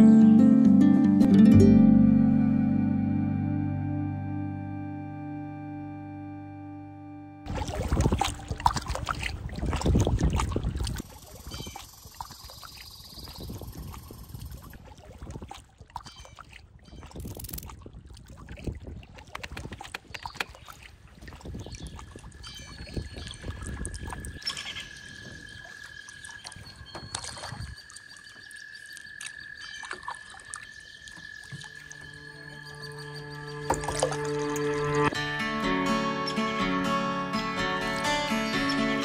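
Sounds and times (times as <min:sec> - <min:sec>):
paddles splashing in water: 0:07.5 - 0:35.2
thin high tone: 0:31.6 - 0:39.0
paddle knocking hull: 0:33.7 - 0:35.0.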